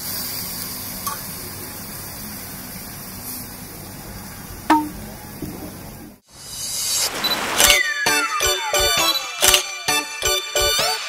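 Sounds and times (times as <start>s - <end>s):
meat sizzling on grill plate: 0.0s - 3.7s.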